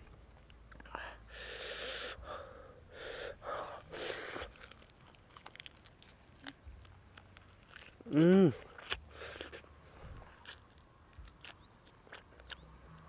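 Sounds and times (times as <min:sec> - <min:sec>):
man breathing hard: 0:00.9 - 0:04.5
mouth clicks while biting: 0:05.4 - 0:09.6.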